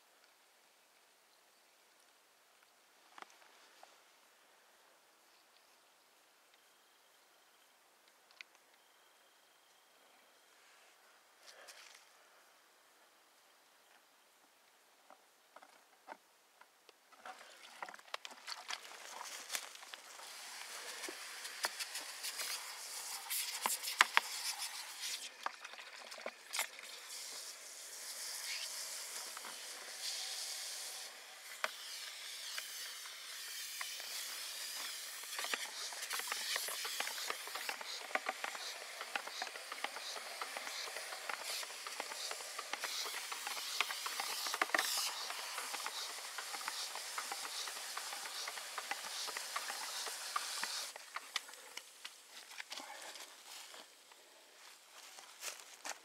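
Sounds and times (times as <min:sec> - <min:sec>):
brush swishing water in bucket: 0:31.4 - 0:51.0
sharp ticks: 0:31.4 - 0:52.2.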